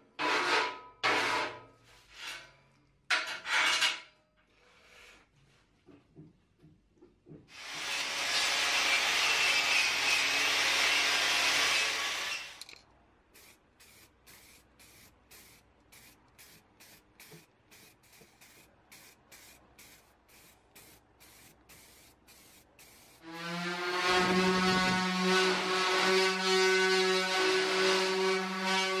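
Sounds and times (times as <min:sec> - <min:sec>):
aerosol spray can hissing: 0:13.4 - 0:23.2.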